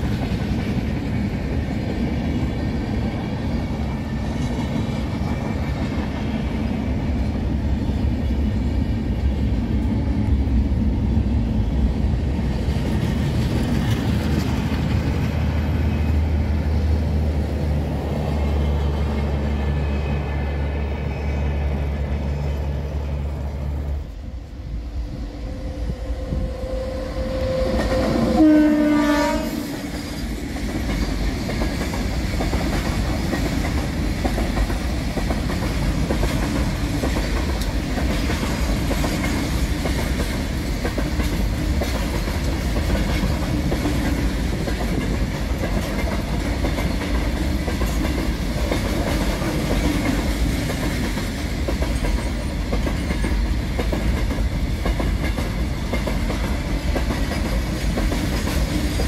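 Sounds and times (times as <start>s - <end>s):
train wagons clattering on rails: 0.0s - 17.0s, 27.3s - 59.0s
locomotive horn: 25.6s - 29.7s.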